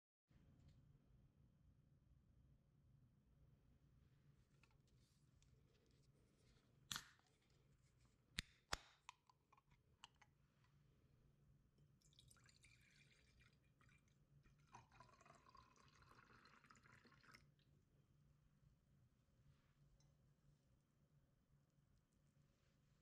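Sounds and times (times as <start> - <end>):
drink pouring into glass mug: 12.0 - 17.6.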